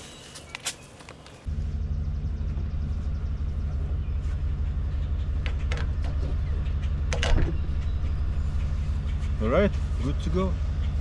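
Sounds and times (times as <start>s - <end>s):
car engine idling: 1.5s - 11.0s.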